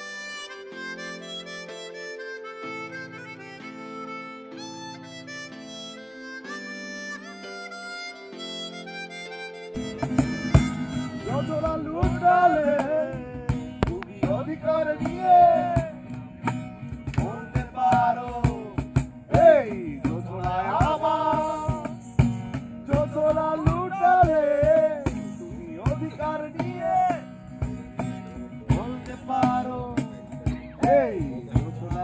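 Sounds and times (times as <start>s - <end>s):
sustained low accompaniment: 9.8s - 16.5s
person singing: 9.9s - 15.9s
clicking percussion: 13.5s - 14.3s.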